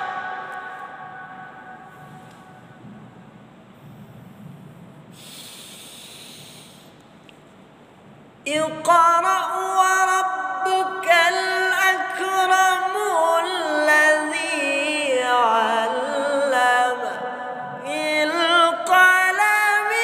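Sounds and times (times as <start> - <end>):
man reciting melodically: 0.0 - 2.6, 8.5 - 20.0
breath: 3.8 - 7.2.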